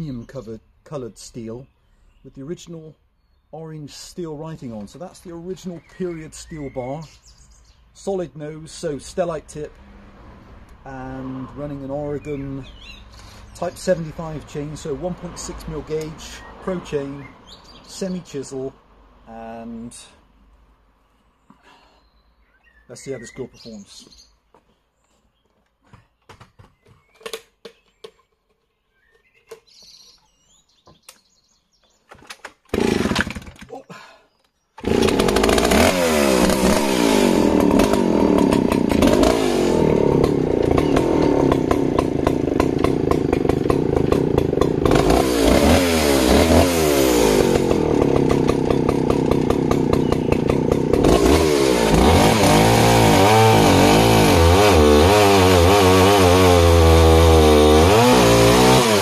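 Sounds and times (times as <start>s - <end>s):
chainsaw revving: 10.9s - 17.1s, 32.7s - 33.7s, 34.8s - 59.0s
chainsaw pull-start: 13.1s - 14.0s, 32.1s - 33.8s, 34.8s - 59.0s.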